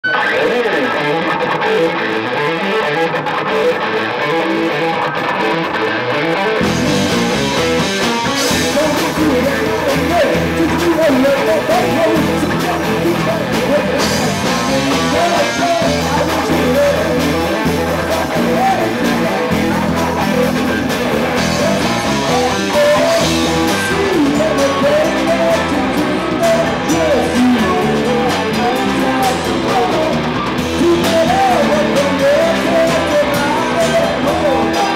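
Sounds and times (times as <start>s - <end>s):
electric guitar: 0.0s - 34.9s
live rock band playing: 0.0s - 34.9s.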